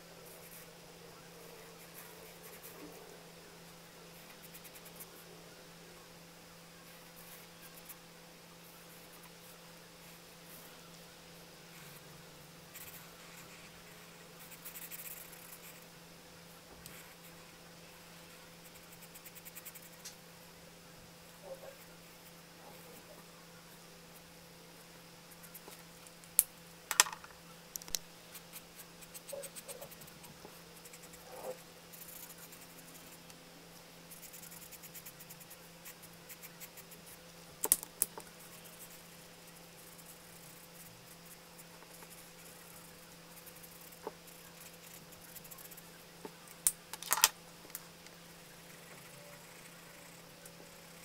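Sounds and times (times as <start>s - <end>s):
marker scratching on paper: 28.3s - 33.1s
felt-tip marker on paper: 28.3s - 33.2s, 34.1s - 37.2s, 38.4s - 45.9s
sharp clicks of pens put down: 47.0s - 47.3s.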